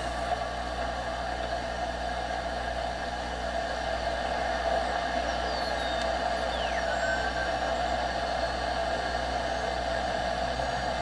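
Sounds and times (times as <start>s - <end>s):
radio band noise hiss: 0.0s - 11.0s
faint whistles sliding down: 4.7s - 11.0s.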